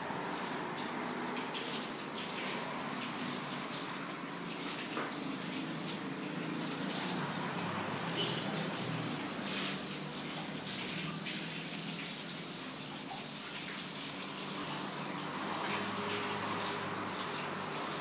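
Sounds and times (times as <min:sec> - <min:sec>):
hose water splashing on dogs: 0:00.0 - 0:18.0.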